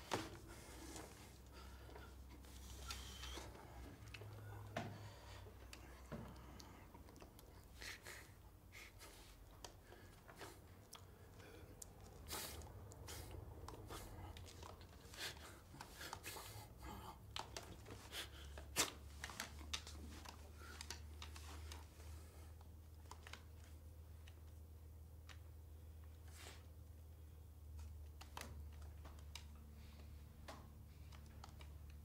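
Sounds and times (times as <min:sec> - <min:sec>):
low room hum: 0:00.0 - 0:32.0.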